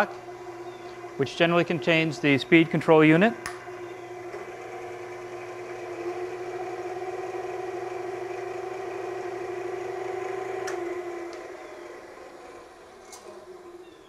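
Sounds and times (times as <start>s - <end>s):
lathe motor humming: 0.0s - 14.0s
switch click: 3.4s - 3.6s.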